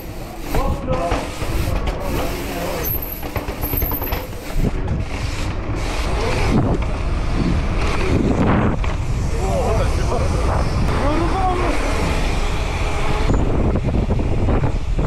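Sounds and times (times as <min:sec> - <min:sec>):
bike tyre rumble: 0:00.0 - 0:15.0
street traffic: 0:00.0 - 0:15.0
wind buffeting microphone: 0:03.2 - 0:15.0.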